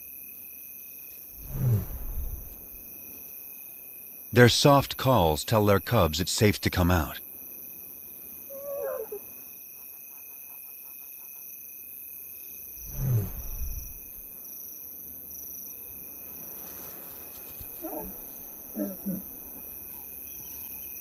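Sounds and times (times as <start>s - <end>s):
crickets chirring: 0.0s - 21.0s
lion calls: 8.5s - 9.3s, 17.7s - 20.8s.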